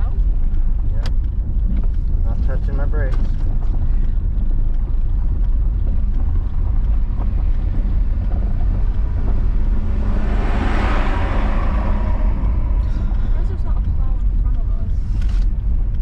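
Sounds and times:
car engine and tyres rumbling: 0.0s - 16.0s.

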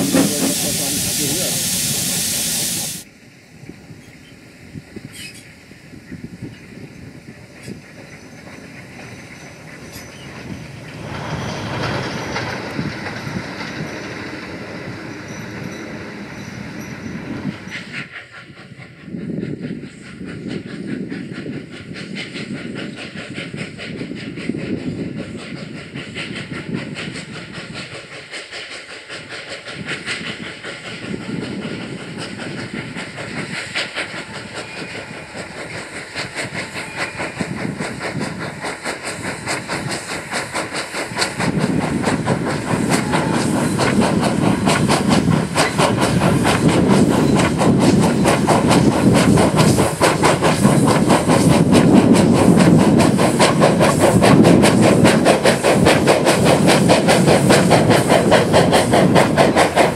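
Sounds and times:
hissing steam: 0.0s - 59.9s
steam locomotive exhaust chuffs: 0.0s - 59.9s.

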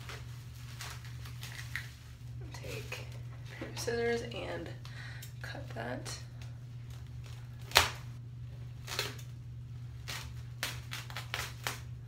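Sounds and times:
steady low hum: 0.0s - 12.0s
scissors cutting plastic wrap: 8.8s - 9.3s, 10.0s - 11.9s.

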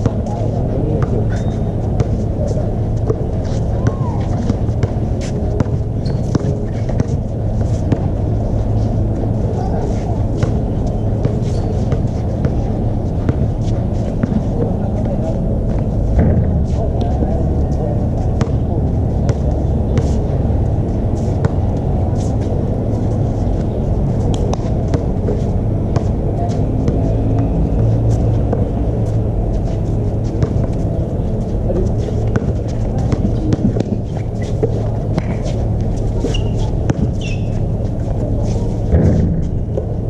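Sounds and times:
low rumble: 0.0s - 40.0s
sneaker squeaks: 1.0s - 8.1s, 10.0s - 14.4s, 31.9s - 39.6s
basketball bouncing on court: 5.6s - 7.2s.

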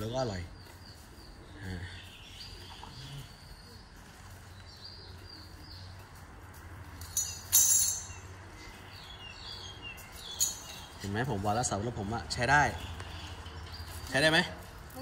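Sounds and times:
metal chain clinking: 7.0s - 8.3s, 10.2s - 11.0s.

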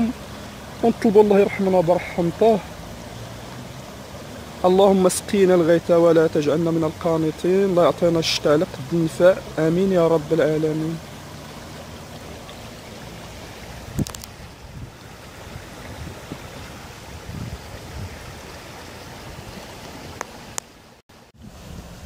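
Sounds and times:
river water flowing: 0.0s - 22.0s
wind on microphone: 13.7s - 20.4s, 21.4s - 22.0s.

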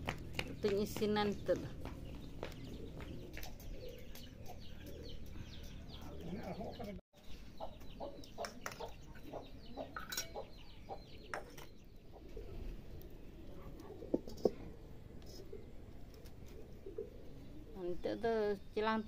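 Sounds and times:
chickens clucking: 1.5s - 17.5s
metal dishes clinking: 9.9s - 10.6s.

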